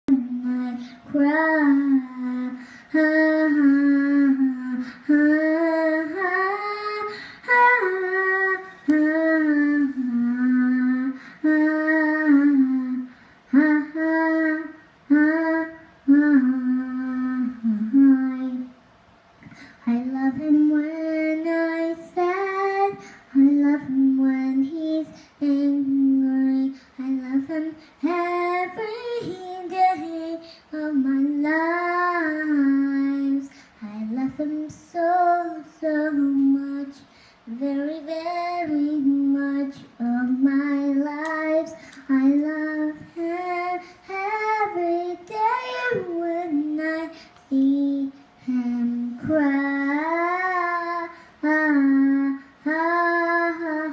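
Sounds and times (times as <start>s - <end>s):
girl singing unaccompanied: 0.1s - 18.8s, 19.5s - 53.9s
girl breathing: 2.6s - 3.0s, 4.8s - 5.1s, 7.0s - 7.5s, 11.1s - 11.5s, 13.0s - 13.5s, 19.4s - 19.9s, 23.0s - 23.3s, 27.7s - 28.0s, 30.4s - 30.7s, 33.4s - 33.8s, 37.0s - 37.5s, 41.7s - 42.1s, 43.8s - 44.2s, 47.1s - 47.4s, 51.1s - 51.4s.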